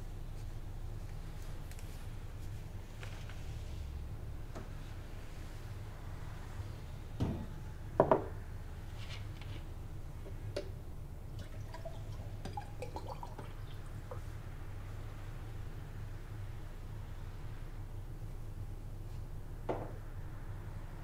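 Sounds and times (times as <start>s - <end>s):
water pouring into glass: 11.3s - 14.2s.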